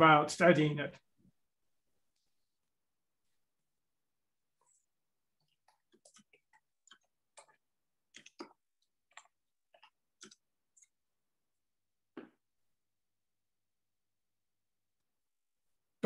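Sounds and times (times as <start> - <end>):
faint irregular clicks and taps: 4.6 - 11.0.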